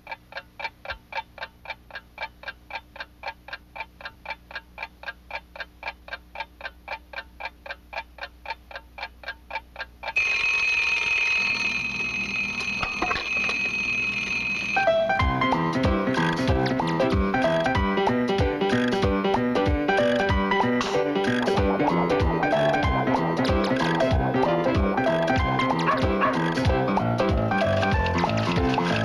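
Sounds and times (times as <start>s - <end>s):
fast even ticking: 0.0s - 10.2s, 15.2s - 29.0s
alarm ringing: 10.2s - 16.4s.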